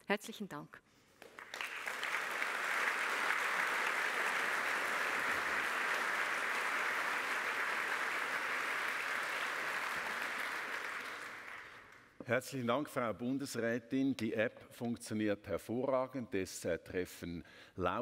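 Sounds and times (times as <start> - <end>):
large audience applauding: 1.2 - 12.1.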